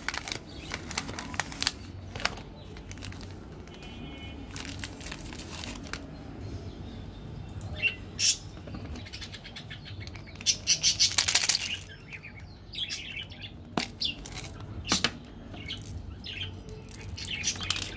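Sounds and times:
candies rattling out of plastic tube: 10.9s - 12.0s.

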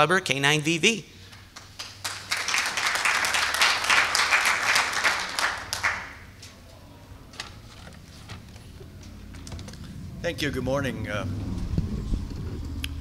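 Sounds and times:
audience applauding: 1.4s - 6.3s.

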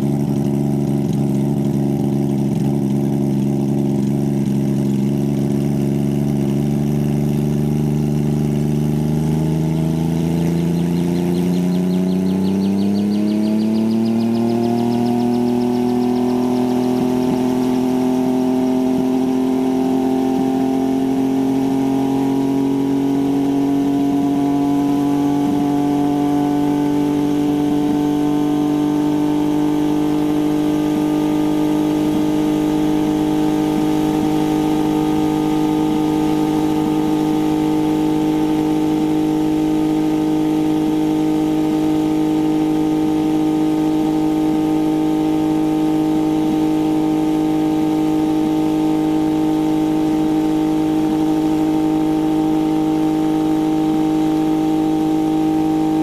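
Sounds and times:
helicopter engine and rotor running: 9.8s - 21.2s.

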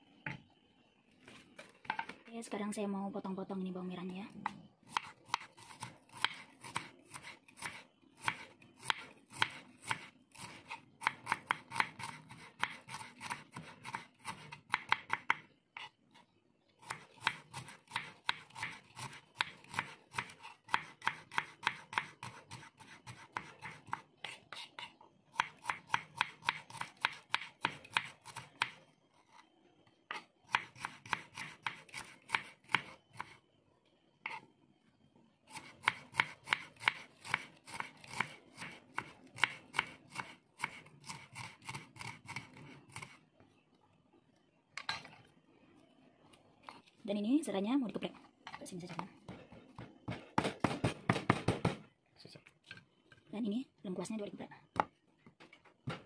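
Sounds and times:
knife chopping on wooden board: 49.3s - 51.8s.

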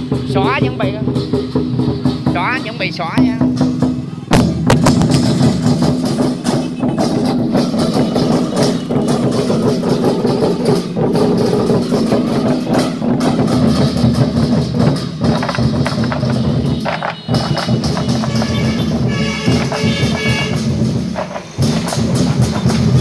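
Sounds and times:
large drums beaten: 0.0s - 23.0s
hand cymbals clashing: 5.4s - 18.8s.

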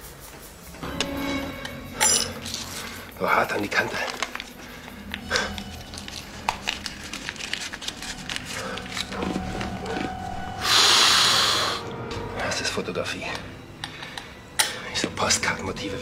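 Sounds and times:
paper rustling: 2.4s - 10.4s.

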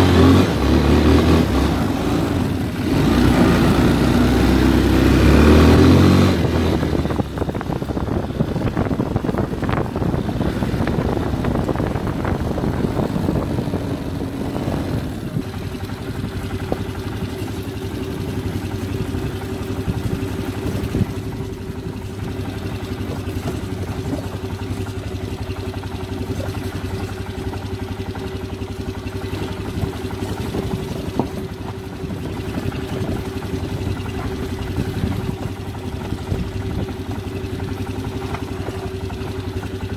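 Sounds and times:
quad bike engine running: 0.0s - 39.9s
knocks and rattles: 15.4s - 39.9s.

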